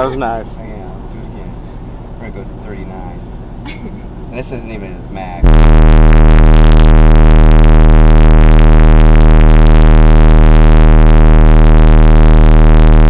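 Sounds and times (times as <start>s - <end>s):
distorted bass tone from subwoofers: 0.0s - 0.6s, 5.4s - 13.0s.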